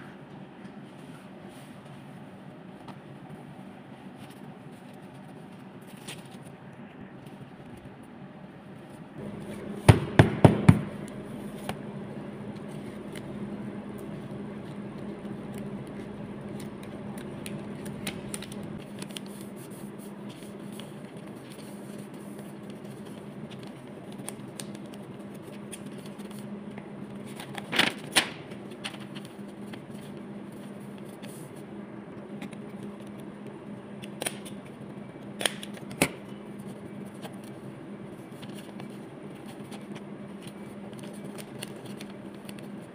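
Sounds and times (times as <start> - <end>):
low hum: 9.2 - 19.2
sticker sheets crackling: 13.9 - 26.4.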